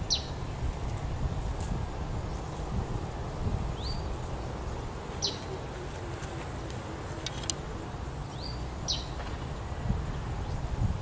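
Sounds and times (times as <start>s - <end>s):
bird chirping: 0.0s - 1.0s, 3.7s - 6.1s, 8.3s - 9.7s
constant low rumble: 0.0s - 11.0s.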